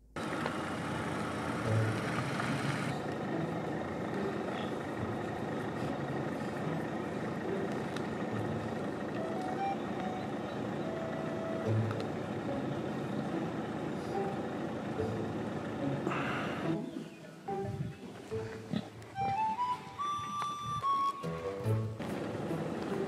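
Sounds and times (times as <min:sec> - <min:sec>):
pigs grunting: 0:04.3 - 0:07.8, 0:16.0 - 0:16.9, 0:18.4 - 0:19.0.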